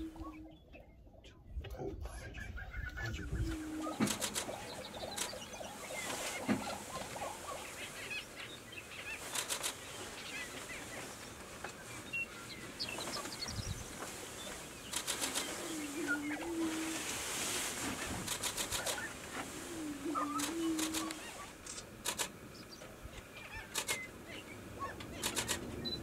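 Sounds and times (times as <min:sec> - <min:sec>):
low hooting call: 0:00.0 - 0:01.3, 0:02.2 - 0:09.2, 0:12.3 - 0:21.8
birds cackling calls: 0:02.2 - 0:26.0
rapid bursts of clicks: 0:03.9 - 0:07.3, 0:09.2 - 0:09.8, 0:14.9 - 0:15.6, 0:18.2 - 0:19.0, 0:20.4 - 0:22.4, 0:23.7 - 0:24.1, 0:25.0 - 0:25.8.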